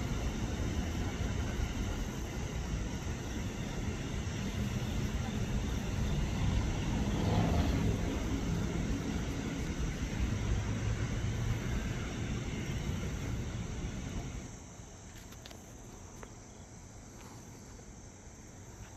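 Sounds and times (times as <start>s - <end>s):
freight train rumbling: 0.0s - 14.6s
insects chirping: 0.0s - 18.9s.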